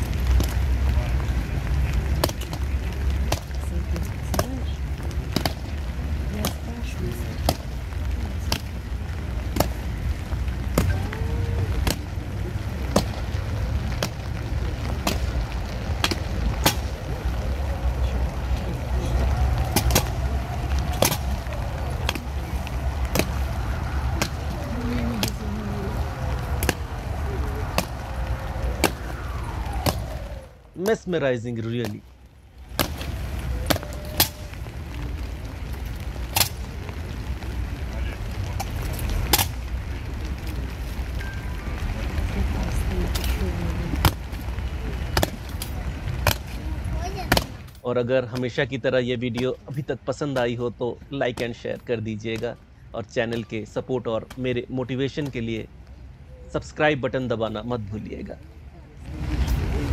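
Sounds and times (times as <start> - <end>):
low rumble: 0.0 - 30.8.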